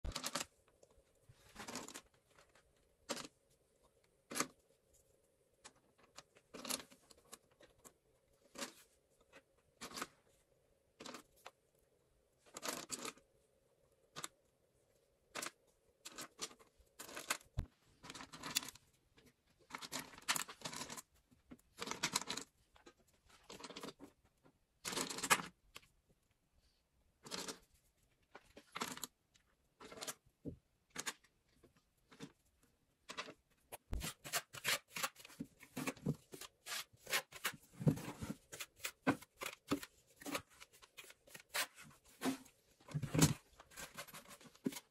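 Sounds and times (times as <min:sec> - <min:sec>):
short rustling and scraping: 0:33.9 - 0:44.9.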